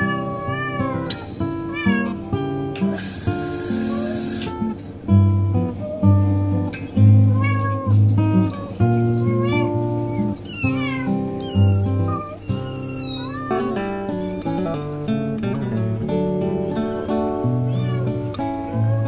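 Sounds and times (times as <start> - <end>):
kitten meowing: 0.0 - 2.2, 2.9 - 4.5, 7.3 - 8.6, 9.2 - 14.8, 17.5 - 19.0
plucked guitar music: 0.0 - 19.0.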